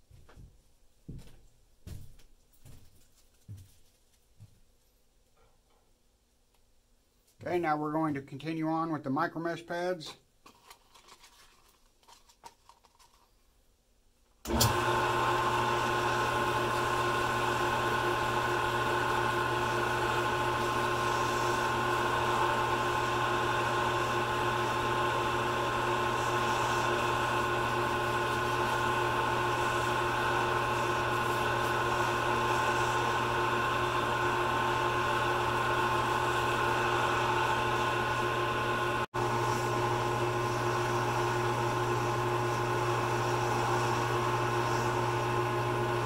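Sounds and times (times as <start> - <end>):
wood lathe motor humming: 14.5 - 46.0.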